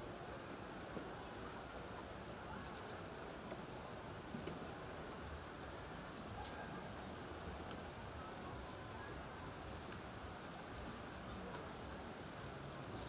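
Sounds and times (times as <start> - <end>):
small birds chirping: 1.0 - 3.6, 5.0 - 7.3, 11.0 - 13.0.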